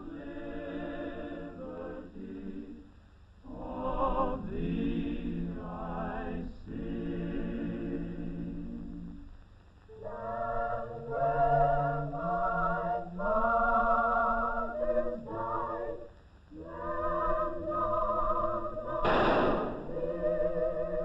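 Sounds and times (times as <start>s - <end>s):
choir singing a hymn: 0.0s - 9.3s, 9.9s - 21.0s
rifle volley crack: 19.0s - 20.1s.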